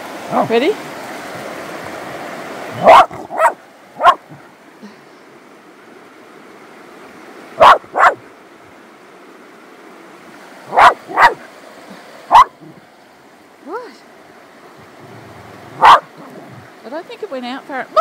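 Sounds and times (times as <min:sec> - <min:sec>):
dog barking: 0:02.8 - 0:04.4, 0:07.6 - 0:08.2, 0:10.7 - 0:11.4, 0:12.3 - 0:12.6, 0:15.8 - 0:16.4.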